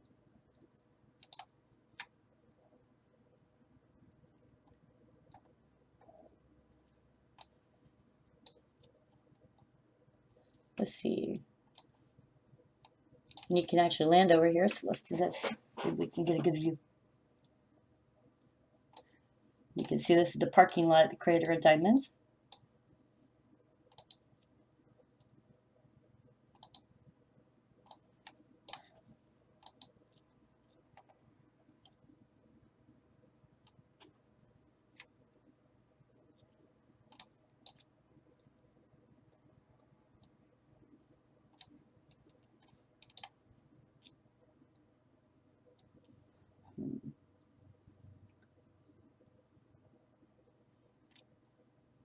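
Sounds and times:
computer mouse clicks: 0:00.5 - 0:02.2, 0:04.6 - 0:07.6, 0:08.4 - 0:09.7, 0:11.7 - 0:12.0, 0:12.8 - 0:13.6, 0:18.9 - 0:19.2, 0:22.5 - 0:22.7, 0:23.9 - 0:24.5, 0:26.5 - 0:26.9, 0:27.8 - 0:29.0, 0:29.6 - 0:31.2, 0:33.6 - 0:34.2, 0:34.9 - 0:35.2, 0:36.3 - 0:38.7, 0:39.3 - 0:40.4, 0:41.5 - 0:43.4, 0:44.0 - 0:44.9, 0:45.7 - 0:47.0, 0:51.1 - 0:51.6.

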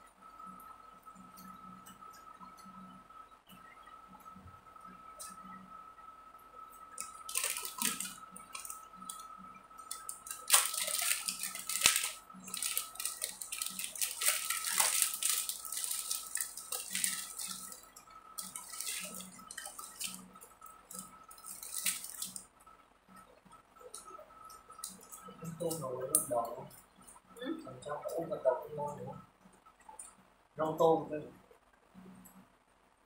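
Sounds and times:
faint high whine: 0:00.0 - 0:33.0
crinkling and rustling: 0:06.9 - 0:09.2, 0:09.8 - 0:22.5.

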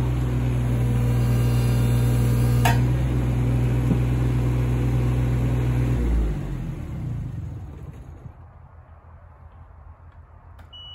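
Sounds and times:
excavator diesel engine running: 0:00.0 - 0:08.4.

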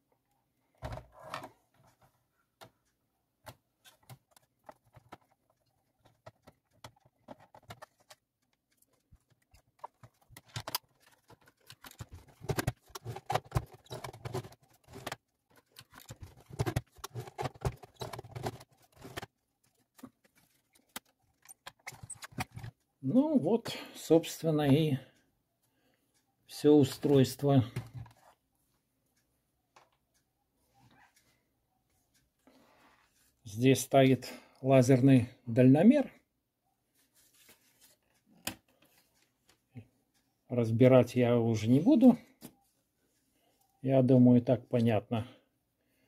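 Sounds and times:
plastic parts clattering: 0:00.8 - 0:02.7, 0:03.4 - 0:22.8
screwdriver and plastic clicks: 0:03.4 - 0:22.8.

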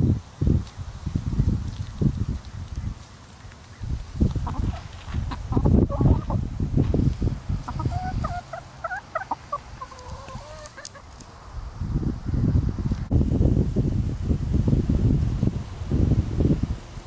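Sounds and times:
hens clucking: 0:03.0 - 0:06.4, 0:07.6 - 0:11.3.

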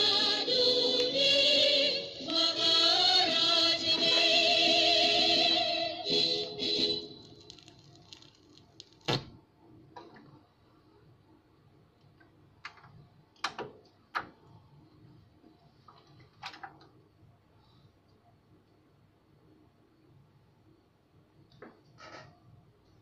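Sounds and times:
music from record: 0:00.0 - 0:08.3.

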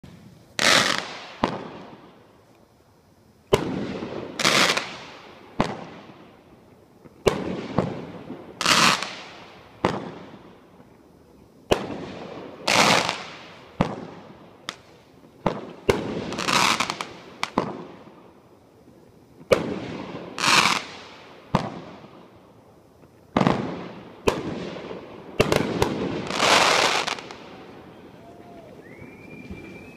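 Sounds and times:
firework bursts banging: 0:00.0 - 0:02.3, 0:03.5 - 0:06.4, 0:07.0 - 0:10.9, 0:11.7 - 0:18.3, 0:23.0 - 0:29.9.

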